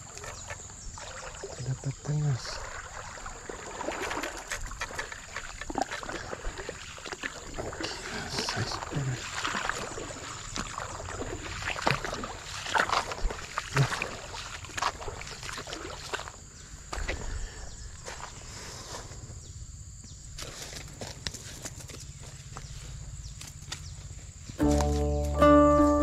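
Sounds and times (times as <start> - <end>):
stream water splashing: 0.0 - 17.1.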